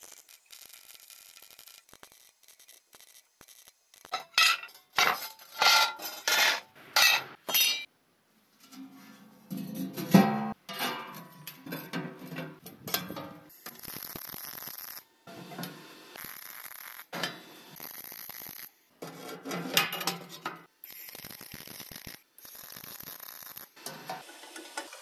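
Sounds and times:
arc welding crackle: 0.0s - 4.4s, 13.5s - 18.9s, 20.8s - 25.0s
metal panels clinking and scraping: 4.1s - 7.9s, 8.6s - 13.5s, 19.0s - 20.7s.

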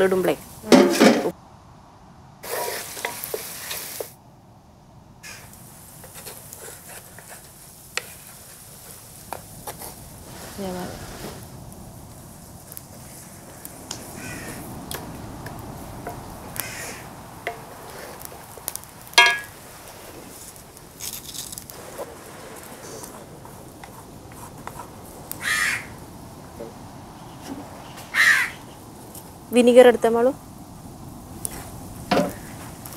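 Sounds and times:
chilli paste sizzling in oil: 2.4s - 4.2s, 5.2s - 32.9s
crows cawing: 5.2s - 5.5s, 14.0s - 14.7s, 16.5s - 17.6s, 25.4s - 26.0s, 28.0s - 28.8s.

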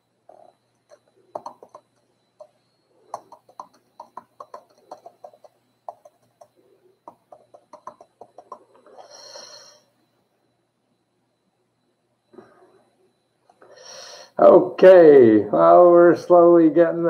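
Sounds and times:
computer keyboard typing: 0.3s - 9.1s
burst of hiss: 8.9s - 9.9s, 13.7s - 14.4s.

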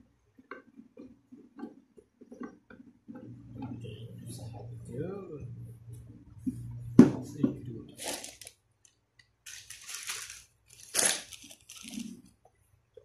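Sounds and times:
plastic crinkling and rustling: 7.9s - 12.4s.

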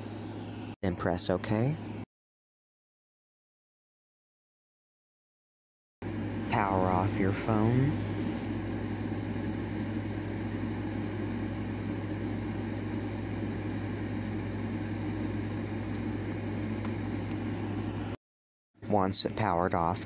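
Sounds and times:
steady low hum: 6.0s - 18.2s.

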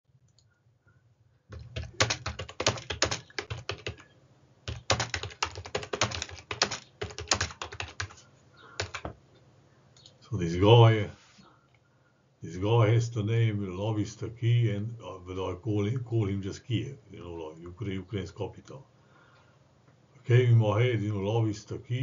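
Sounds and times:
typing on computer keyboard: 1.5s - 4.1s, 4.7s - 8.2s, 8.8s - 9.2s.

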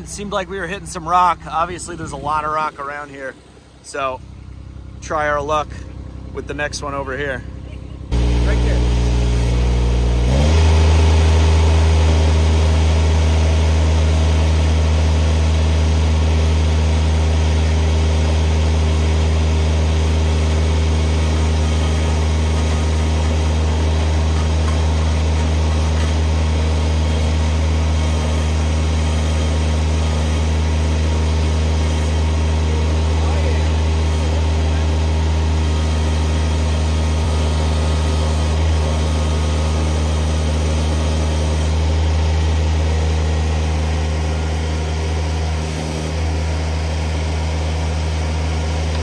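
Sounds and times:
hydraulic auger boring ground: 0.0s - 49.0s
skid steer engine under load: 0.0s - 49.0s.

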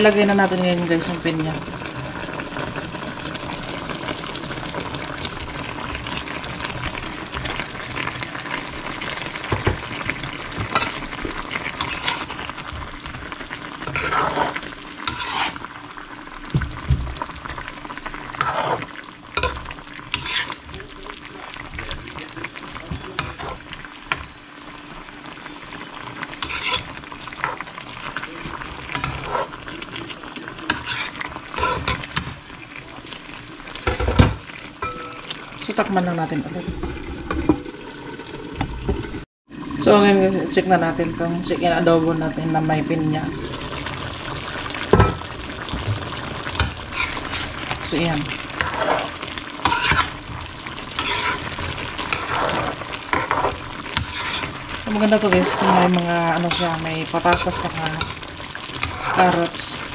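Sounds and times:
sauce sizzling in a pan: 0.0s - 59.9s
metal spoon scraping a pan: 11.8s - 12.4s, 13.8s - 15.6s, 18.4s - 20.6s, 26.4s - 27.6s, 29.0s - 29.6s, 30.7s - 32.3s, 46.6s - 50.2s, 50.9s - 59.7s.

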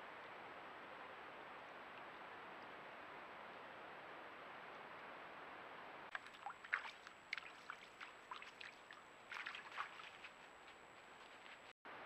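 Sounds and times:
shallow creek trickling: 6.1s - 10.5s.

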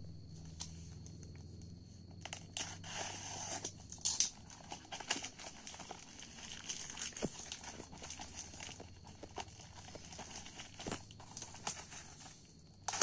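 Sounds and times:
plastic wrapping crinkling and tearing: 2.2s - 13.0s.

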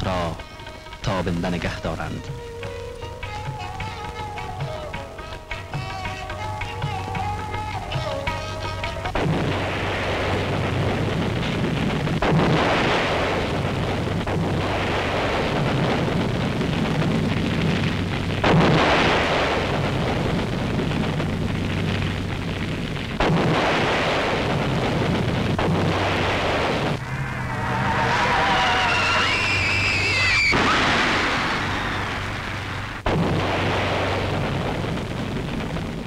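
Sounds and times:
explosions with rumbling roar: 9.2s - 36.0s
low hum: 24.2s - 35.2s.

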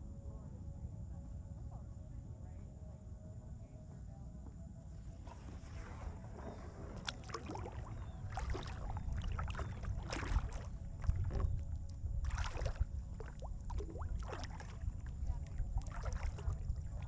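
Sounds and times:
low rumble: 0.0s - 17.0s
paddle splashing into water: 5.7s - 17.0s.

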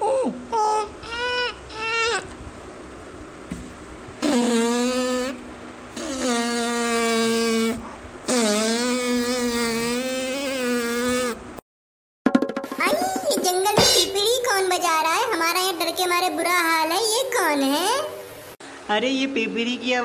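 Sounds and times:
cartoon fart sound effect: 4.2s - 11.4s.

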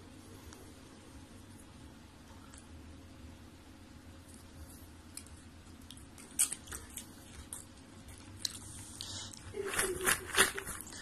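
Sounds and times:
dog crunching popcorn: 4.3s - 11.0s.

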